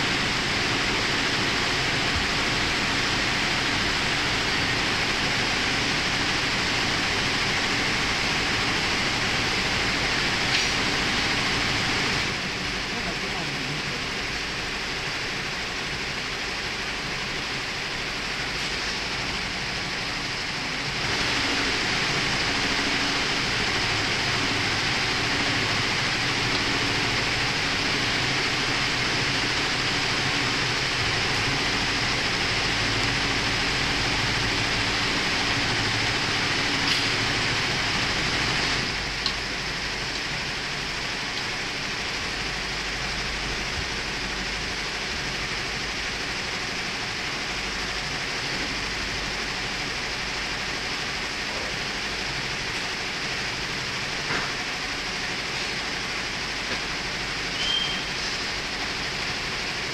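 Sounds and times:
machine-room hum and hiss: 0.0 - 59.9.

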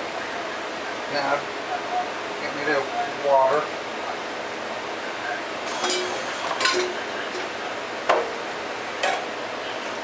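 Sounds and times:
kitchen utensils clinking: 5.7 - 7.5.

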